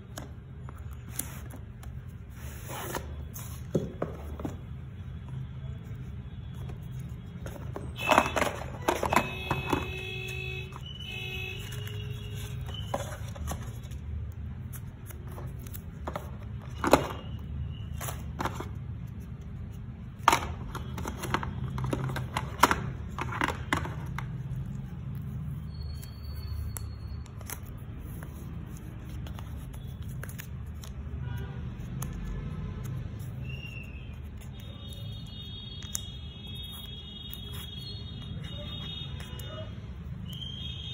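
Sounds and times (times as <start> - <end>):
cardboard packaging handled: 11.6 - 14.1.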